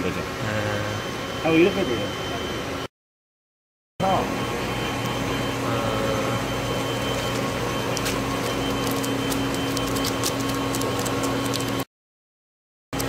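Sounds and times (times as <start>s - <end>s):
machine hum: 0.0s - 2.9s, 4.0s - 11.9s
water churning: 6.2s - 11.8s.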